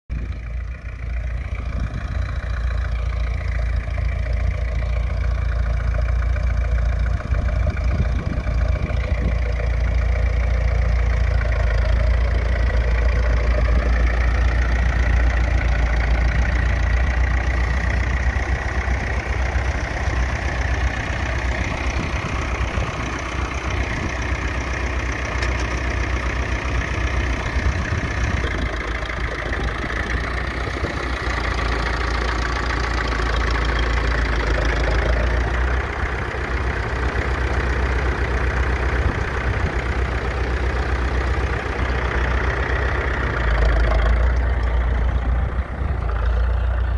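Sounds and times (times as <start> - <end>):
tractor diesel engine running: 0.1 - 46.9.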